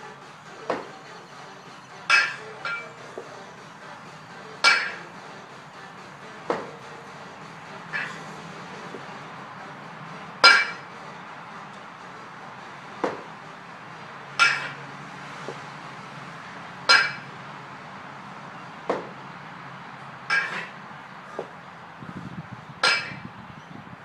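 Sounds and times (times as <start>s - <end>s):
kettlebell metallic clinks: 2.0s - 3.0s, 4.6s - 5.1s, 10.4s - 10.9s, 14.4s - 14.8s, 16.9s - 17.3s, 20.3s - 20.7s, 22.8s - 23.3s.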